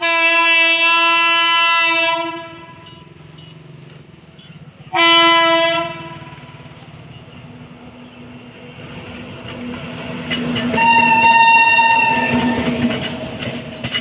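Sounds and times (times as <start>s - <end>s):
train air horn blasts: 0.0s - 3.1s, 4.9s - 6.6s, 10.6s - 12.9s
low rumble of train: 0.0s - 14.0s.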